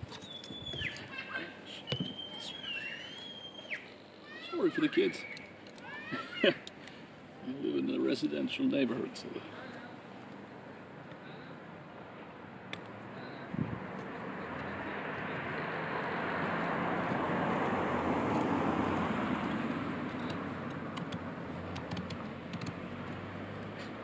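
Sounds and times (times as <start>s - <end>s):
road vehicle passing: 10.6s - 24.0s.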